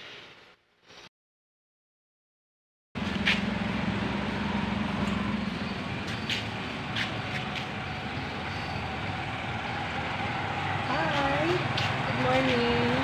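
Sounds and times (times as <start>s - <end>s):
street background noise: 3.0s - 13.0s
vehicle engine running: 3.0s - 13.0s.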